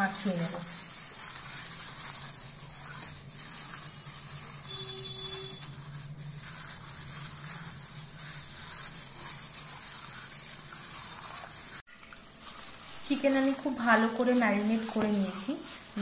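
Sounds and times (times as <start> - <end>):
plastic rustling: 0.0 - 16.0.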